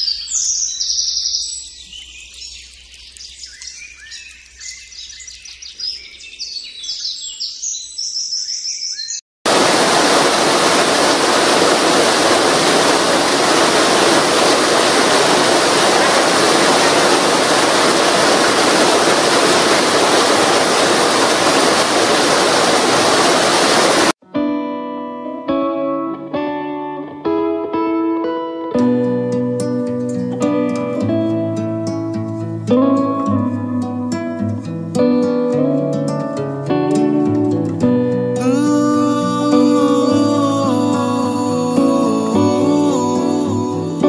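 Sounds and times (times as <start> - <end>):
birds chirping: 0.0 - 9.6
waterfall rushing: 9.5 - 24.2, 38.5 - 44.0
guitar music: 24.2 - 44.0.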